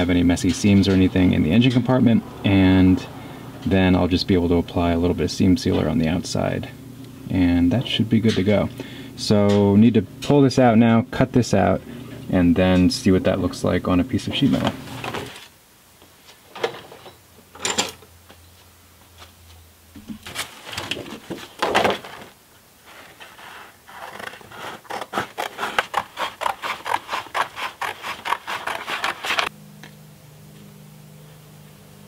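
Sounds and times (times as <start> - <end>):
paper rustling: 14.5 - 15.5, 20.1 - 29.5
scissors snipping paper: 23.9 - 29.5.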